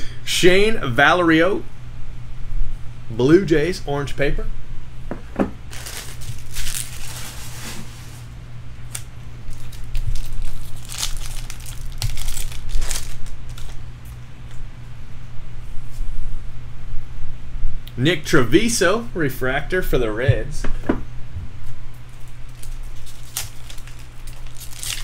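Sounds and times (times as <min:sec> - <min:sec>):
foil wrapper crinkling: 0:05.7 - 0:08.3, 0:08.9 - 0:14.2, 0:22.1 - 0:25.0.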